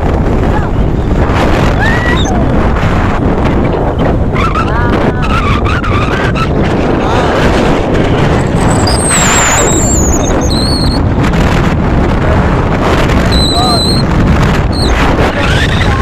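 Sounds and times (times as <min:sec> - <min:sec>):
wind and road noise rumble: 0:00.0 - 0:16.0
high squeal: 0:08.6 - 0:11.0, 0:13.3 - 0:14.1, 0:14.7 - 0:16.0.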